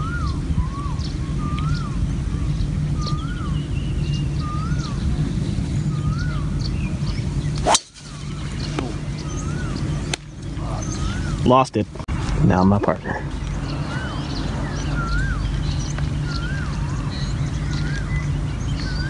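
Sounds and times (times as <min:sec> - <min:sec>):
birds chirping and trilling: 0:00.0 - 0:19.0
golf ball struck: 0:07.6 - 0:09.0.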